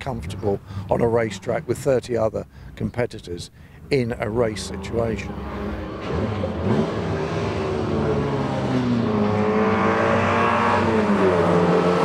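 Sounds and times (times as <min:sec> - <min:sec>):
racing car engines at high revs: 0:04.3 - 0:12.0.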